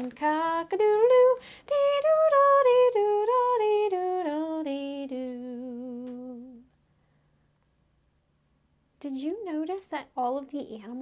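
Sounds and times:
woman singing unaccompanied: 0:00.0 - 0:06.8.

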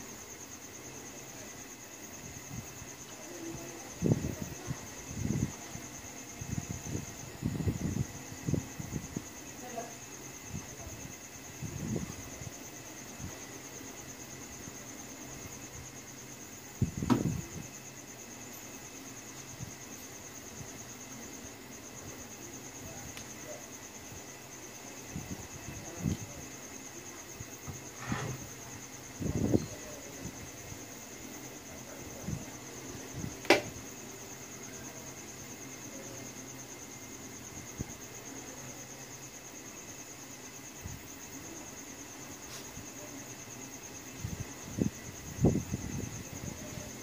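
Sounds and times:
cricket chirping: 0:00.0 - 0:47.0
sharp click: 0:33.4 - 0:33.7.

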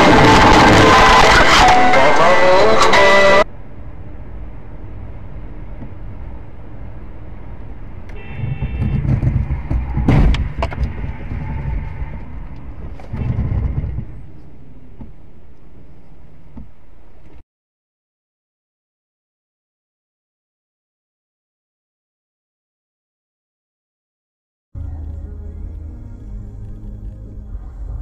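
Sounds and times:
car engine and road rumble: 0:00.0 - 0:17.4, 0:24.8 - 0:28.0.

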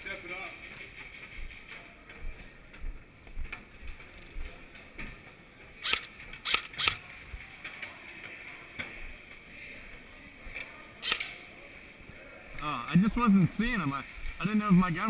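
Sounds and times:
footsteps walking: 0:00.6 - 0:05.3
sharp clicks: 0:05.8 - 0:07.0, 0:11.0 - 0:11.4.

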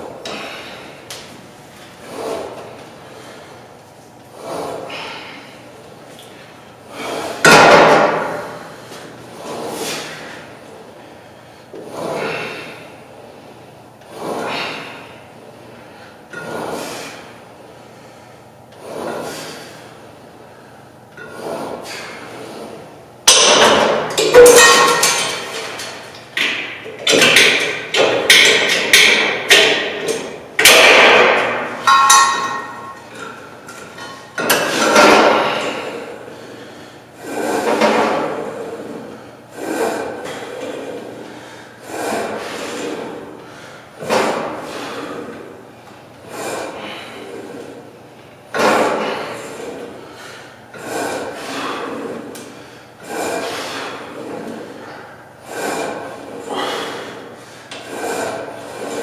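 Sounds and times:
weight stack clanking: 0:23.3 - 0:36.2, 0:41.8 - 0:45.5, 0:48.5 - 0:59.0.

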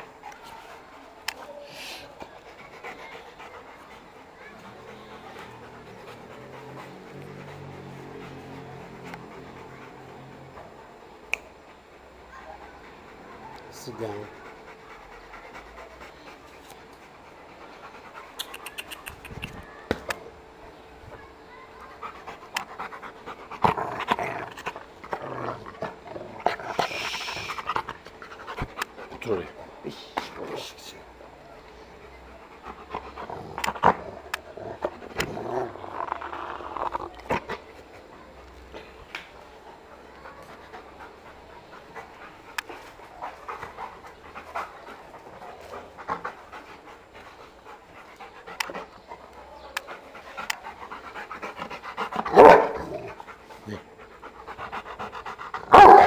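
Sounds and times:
dog panting: 0:00.0 - 0:19.6, 0:21.1 - 0:56.0
sharp clicks and taps: 0:18.4 - 0:20.2.

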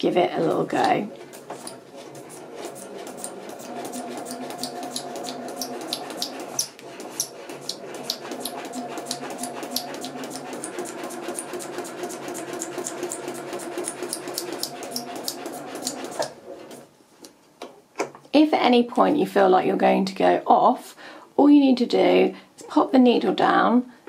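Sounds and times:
needle punching through paper: 0:00.8 - 0:16.8
sewing machine running: 0:00.8 - 0:16.8.

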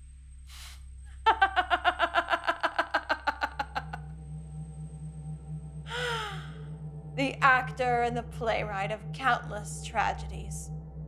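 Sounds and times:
low steady hum: 0:00.0 - 0:11.0
woman laughing: 0:01.3 - 0:04.0, 0:05.9 - 0:06.5.

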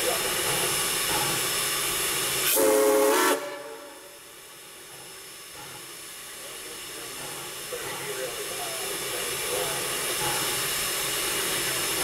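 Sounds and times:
steam locomotive hissing: 0:00.0 - 0:12.0
steam whistle blast: 0:02.4 - 0:04.2.

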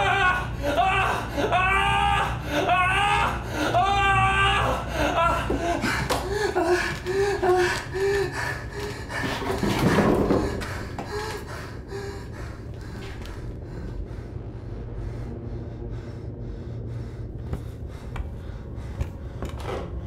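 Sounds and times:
heavy breathing: 0:04.8 - 0:20.0
low steady hum: 0:10.5 - 0:20.0.

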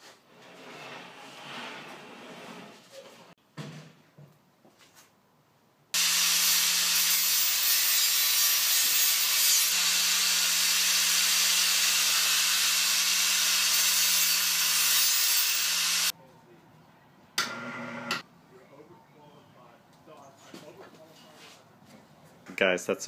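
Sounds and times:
angle grinder grinding steel: 0:06.0 - 0:16.1.

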